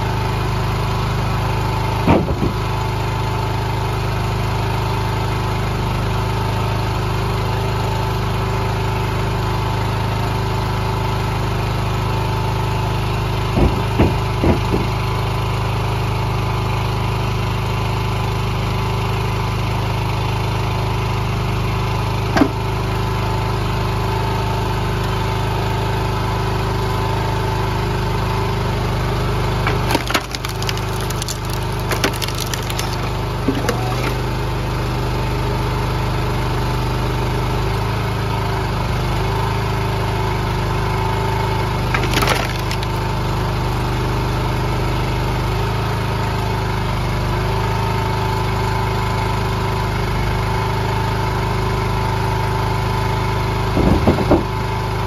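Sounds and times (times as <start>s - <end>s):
wood cracking and splintering: 29.6s - 34.4s, 41.8s - 43.2s.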